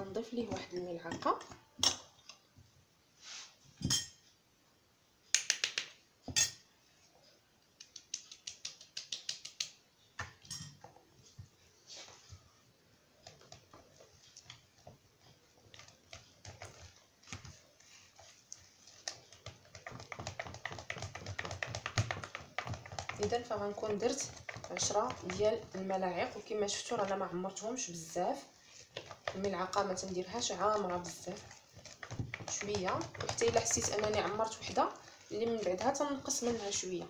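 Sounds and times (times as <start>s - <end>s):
whisk clicking against bowl: 18.9s - 26.4s, 29.0s - 36.7s.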